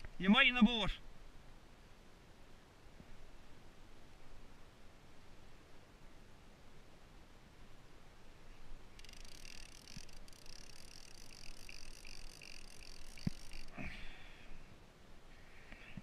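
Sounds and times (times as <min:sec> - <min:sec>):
fishing reel drag screaming: 0:09.0 - 0:13.8.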